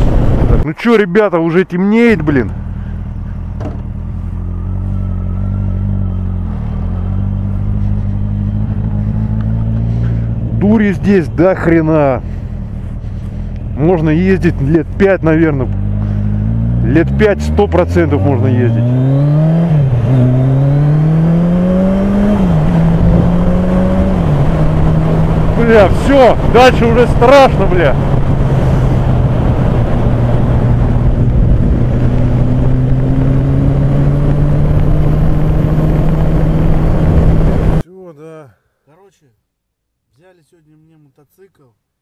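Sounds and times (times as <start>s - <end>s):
motorcycle engine accelerating: 2.0s - 37.8s
motorcycle engine running: 2.2s - 14.0s.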